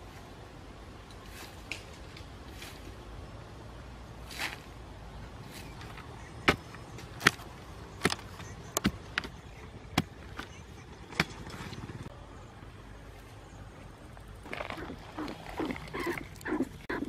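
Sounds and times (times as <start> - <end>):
loose soil rustling: 0.0 - 3.3, 4.1 - 12.0, 13.0 - 17.0
stick knocking into hard earth: 6.4 - 9.4.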